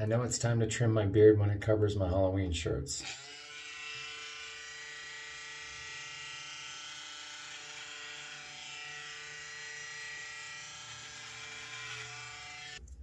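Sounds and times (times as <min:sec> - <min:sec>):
electric trimmer buzzing: 0:03.1 - 0:12.8.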